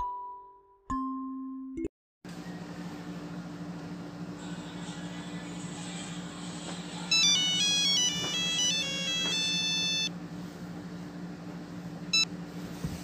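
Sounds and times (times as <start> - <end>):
phone ringtone melody: 7.1 - 10.1
short beep: 7.1 - 10.1.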